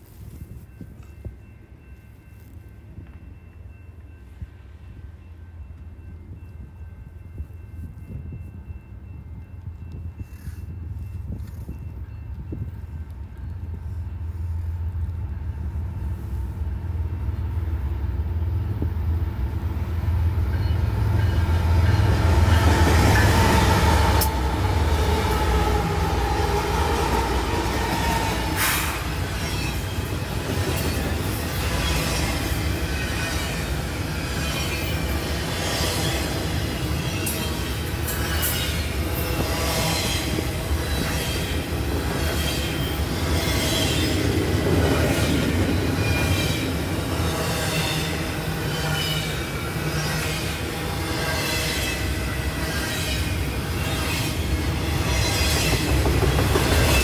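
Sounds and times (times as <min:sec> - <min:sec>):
train rumbling: 0:00.0 - 0:57.0
railcars clicking over rail joints: 0:18.5 - 0:57.0.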